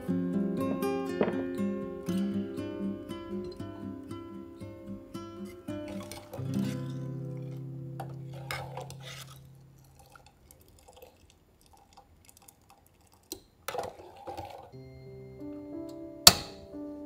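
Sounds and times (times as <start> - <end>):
music: 0.0 - 9.2, 14.8 - 17.0
guitar music: 0.0 - 9.8, 14.8 - 17.0
thick lentils slopping: 4.9 - 14.8
metal ladle clicking against pot: 16.3 - 16.6.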